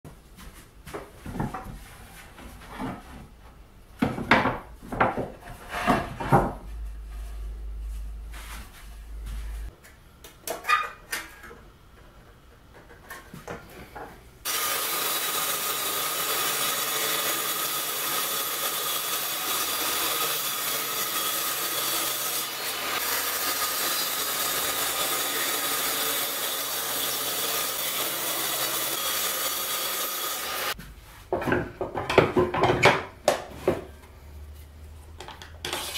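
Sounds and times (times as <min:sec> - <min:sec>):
wooden boards knocking and scraping: 0:04.0 - 0:06.7, 0:31.3 - 0:33.9
table saw cutting wood: 0:14.4 - 0:30.8.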